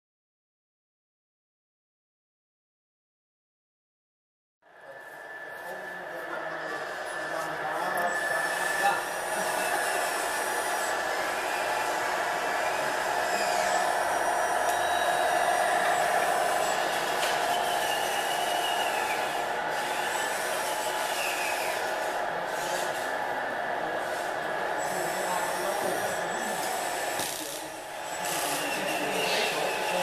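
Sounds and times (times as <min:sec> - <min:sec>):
model truck motors running: 0:06.4 - 0:30.0.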